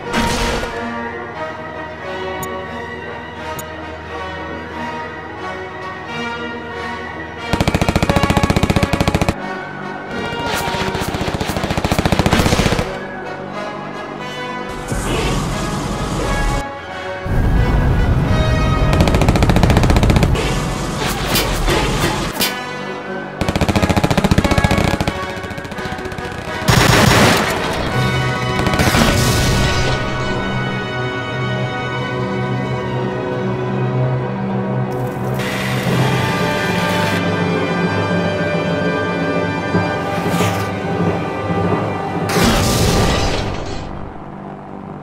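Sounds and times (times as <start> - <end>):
orchestral background music: 0.0 - 45.0
machine-gun fire: 7.5 - 9.4, 10.1 - 13.1, 18.8 - 21.1, 23.4 - 30.0.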